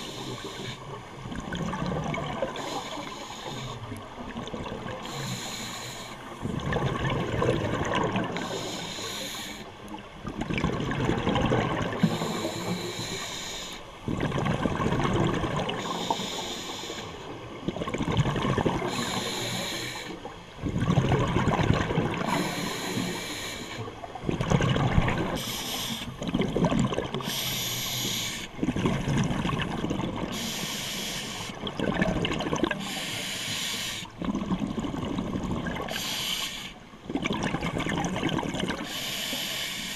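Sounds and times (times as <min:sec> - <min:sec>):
exhaled bubbles rushing: 0:01.2 - 0:02.6, 0:06.4 - 0:08.5, 0:10.2 - 0:12.2, 0:14.0 - 0:15.8, 0:17.6 - 0:19.0, 0:20.6 - 0:22.4, 0:24.2 - 0:25.4, 0:26.2 - 0:27.3, 0:28.6 - 0:30.4, 0:31.6 - 0:32.8, 0:34.2 - 0:36.0, 0:37.0 - 0:38.9
regulator inhalation hiss: 0:02.6 - 0:03.8, 0:05.0 - 0:06.4, 0:08.4 - 0:09.7, 0:12.0 - 0:13.9, 0:15.8 - 0:17.2, 0:18.9 - 0:20.2, 0:22.3 - 0:23.9, 0:25.4 - 0:26.1, 0:27.2 - 0:28.5, 0:30.3 - 0:31.6, 0:32.8 - 0:34.1, 0:35.9 - 0:36.8, 0:38.9 - 0:39.9.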